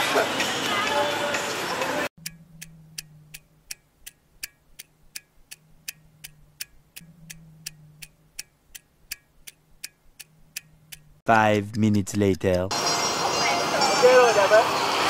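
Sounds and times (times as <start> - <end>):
clock ticking: 2.2 - 12.8.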